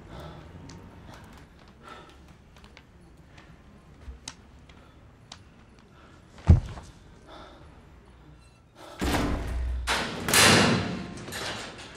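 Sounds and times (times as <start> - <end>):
door slamming clatter: 9.0 - 11.9.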